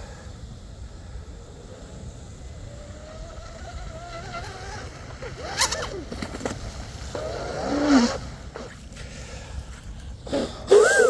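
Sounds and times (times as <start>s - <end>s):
electric motor whining: 10.6s - 11.0s.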